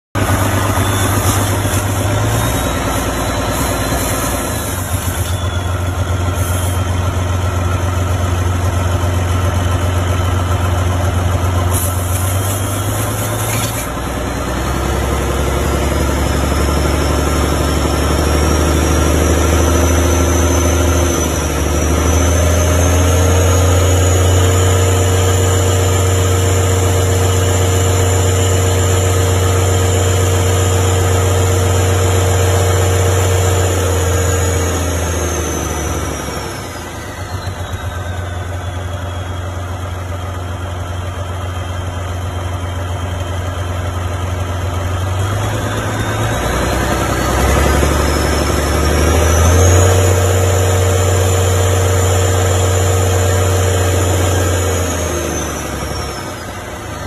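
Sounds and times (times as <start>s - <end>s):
diesel engine running: 0.1s - 57.0s
faint high whine: 0.2s - 10.8s.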